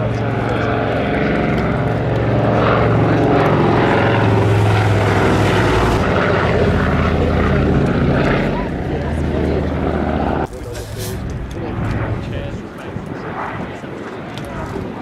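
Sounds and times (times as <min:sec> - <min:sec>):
propeller aircraft droning overhead: 0:00.0 - 0:15.0.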